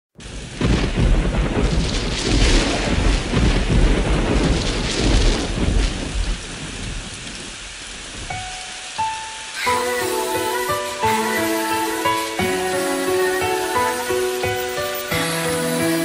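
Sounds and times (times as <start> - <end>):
rolling thunder: 0.2 - 8.4
steady rain: 0.2 - 16.0
music: 8.3 - 16.0.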